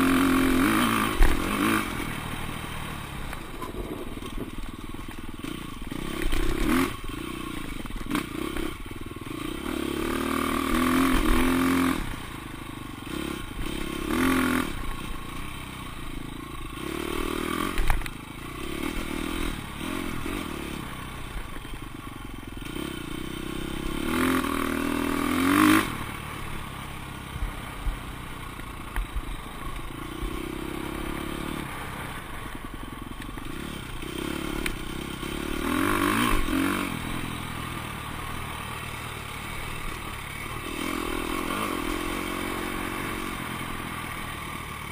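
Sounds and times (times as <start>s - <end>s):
dirt bike engine revving: 0.0s - 21.8s, 22.5s - 28.0s, 29.1s - 44.9s.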